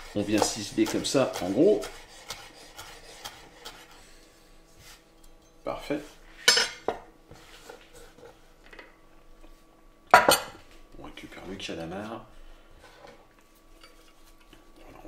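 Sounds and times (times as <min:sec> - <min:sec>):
kitchenware clinking: 0:06.5 - 0:07.1, 0:10.1 - 0:10.6.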